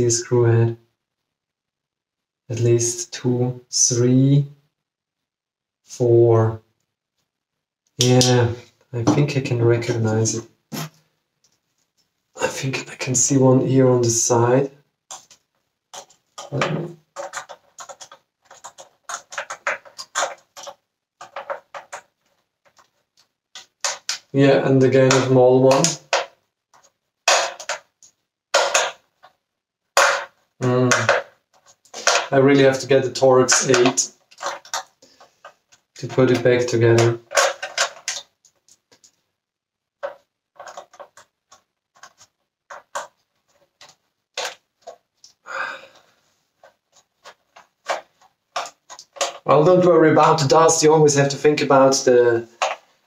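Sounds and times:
handling sound: 14.4 - 29.4, 30.0 - 39.3, 39.9 - 50.7, 51.8 - 53.0
plastic clicks and knocks: 15.1 - 24.3, 25.0 - 29.4, 30.0 - 32.8, 33.5 - 39.2, 40.0 - 45.4, 46.6 - 49.5, 52.5 - 52.9.

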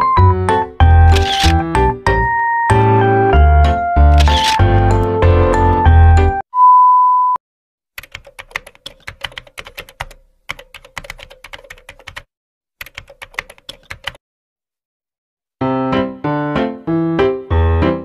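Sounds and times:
piano music: 0.0 - 6.4, 15.6 - 18.0
keyboard typing clicks: 1.1 - 1.6, 4.1 - 4.6, 8.0 - 14.2.

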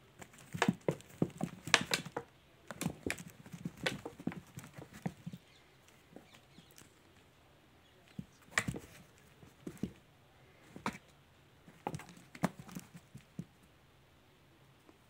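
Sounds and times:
kitten claws scratching on plastic: 0.0 - 5.5, 11.7 - 13.5.

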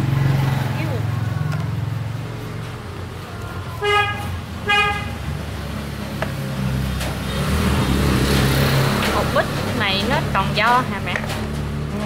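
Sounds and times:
vehicle horn beeps: 3.8 - 5.2.

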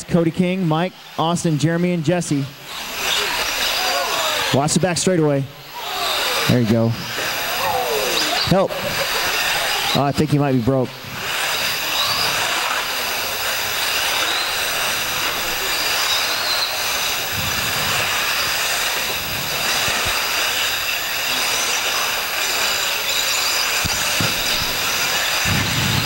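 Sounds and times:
electric motors whining: 0.0 - 26.0
steady hiss: 6.3 - 26.0.

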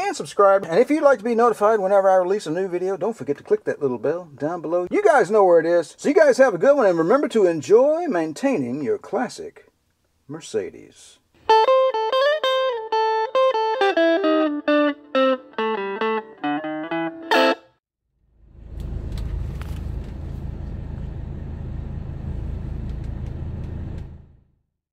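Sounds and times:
electric guitar plucked notes: 11.5 - 17.8.

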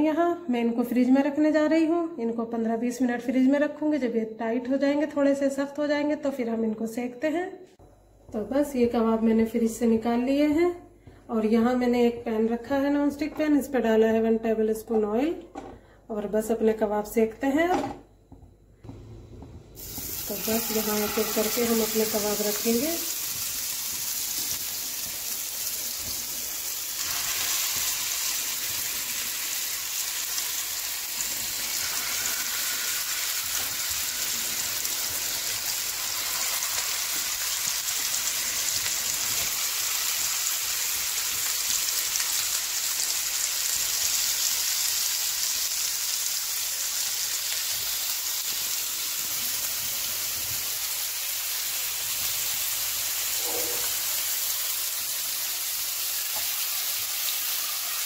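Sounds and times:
meat sizzling in hot oil: 19.8 - 58.0.

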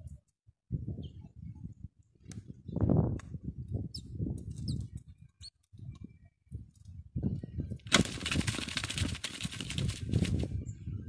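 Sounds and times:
bird wings fluttering against net: 7.9 - 10.6.

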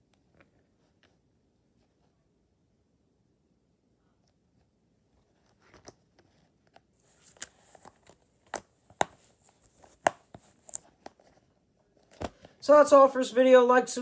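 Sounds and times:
rustling: 4.6 - 12.6.

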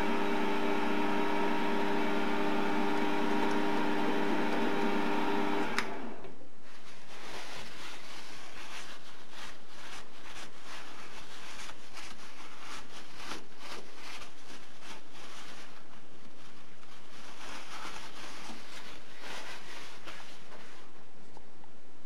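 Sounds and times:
paper towel rubbing on metal: 6.6 - 21.0.

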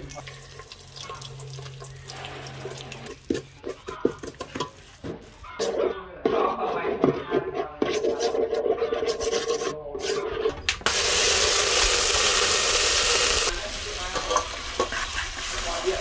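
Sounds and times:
metal spoon scraping a pot: 1.6 - 10.6, 14.2 - 15.6
steam hissing: 10.9 - 13.7.

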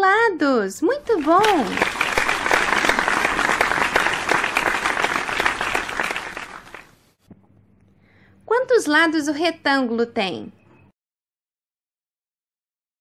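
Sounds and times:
crowd clapping: 1.0 - 7.0.

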